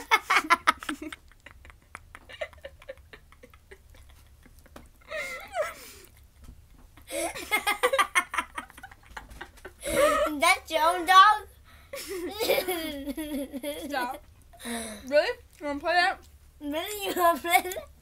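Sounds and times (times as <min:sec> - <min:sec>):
girls laughing: 0:00.0 - 0:10.4, 0:11.9 - 0:14.2.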